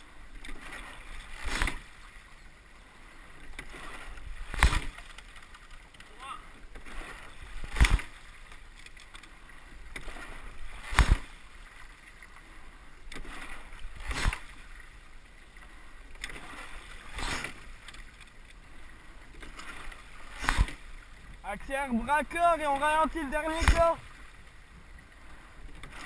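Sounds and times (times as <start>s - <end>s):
water washing along hull: 0.0s - 26.0s
oars knocking in oarlocks: 3.6s - 6.2s.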